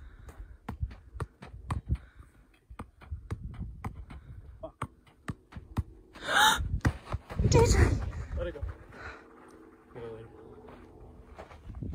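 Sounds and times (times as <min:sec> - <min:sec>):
ball tapping off feet: 0:00.2 - 0:06.0.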